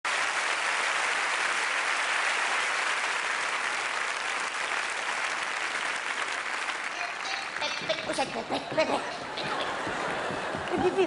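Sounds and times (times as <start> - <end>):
large audience applauding: 0.0 - 11.0.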